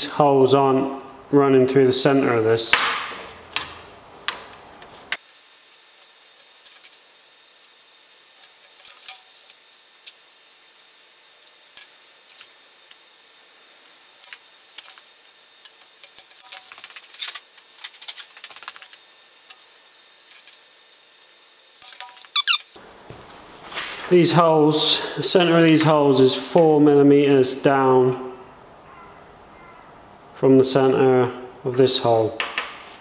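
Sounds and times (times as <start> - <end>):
faint steady hiss: 0.0 - 33.0
metal tools clinking on workbench: 21.7 - 22.7.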